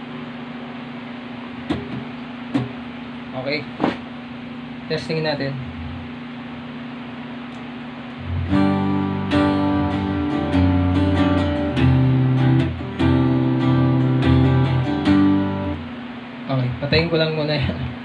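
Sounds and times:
electric guitar strumming chords: 8.2 - 18.0.

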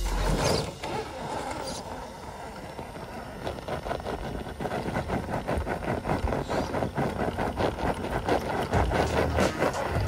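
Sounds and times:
electric motor running: 0.0 - 10.0
tyres scraping against stone: 0.0 - 10.0.

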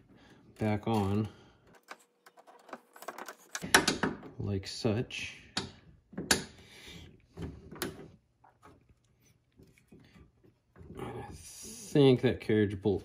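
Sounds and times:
metal bolt clicks and knocks: 0.9 - 4.4.

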